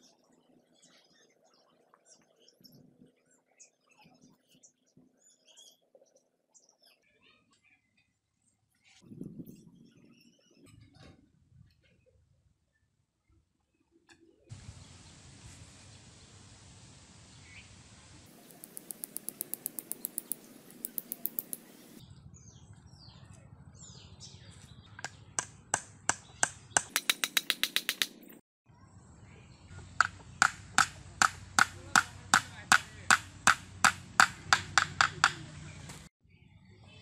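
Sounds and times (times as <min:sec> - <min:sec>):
hammer knocking tool into bamboo: 0:25.0 - 0:28.1, 0:30.0 - 0:35.5.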